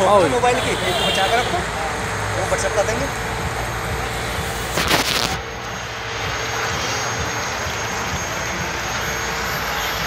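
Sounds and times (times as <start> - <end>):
steady rushing noise: 0.0 - 10.0
burst of hiss: 4.4 - 5.6.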